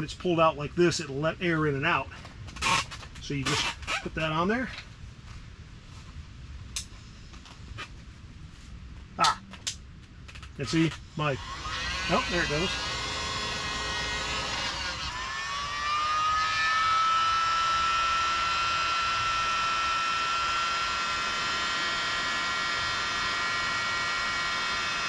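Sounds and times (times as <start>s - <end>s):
air mattress inflator motor whine: 11.2s - 25.0s.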